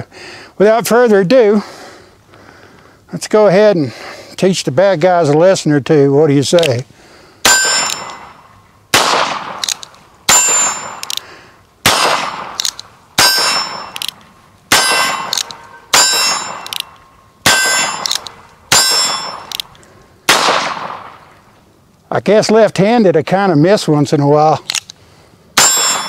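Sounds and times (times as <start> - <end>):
bullet pinging on steel target: 7.4 - 8.6, 9.4 - 11.2, 11.9 - 19.7, 25.6 - 26.0.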